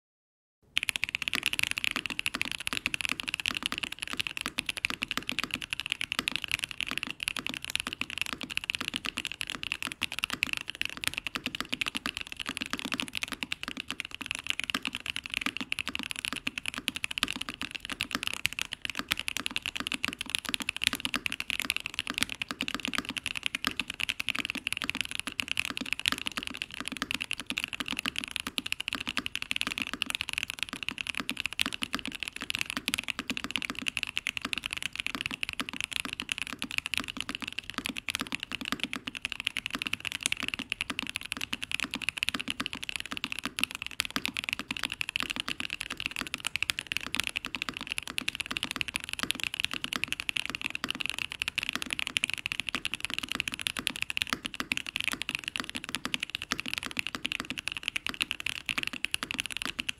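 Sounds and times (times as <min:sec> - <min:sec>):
mechanical keyboard typing: 0:00.7 - 0:59.9.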